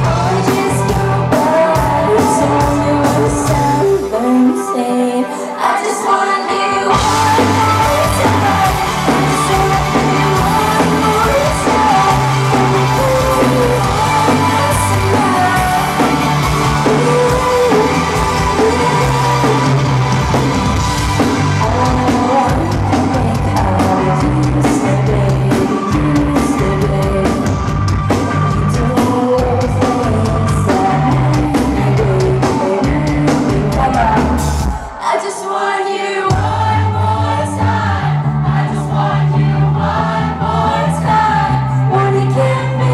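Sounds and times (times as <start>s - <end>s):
bass line: 0.0s - 4.4s, 6.9s - 34.8s, 36.3s - 42.9s
drums: 0.0s - 5.0s, 5.6s - 42.9s
electric guitars: 0.0s - 35.1s
female lead vocal: 0.0s - 42.9s.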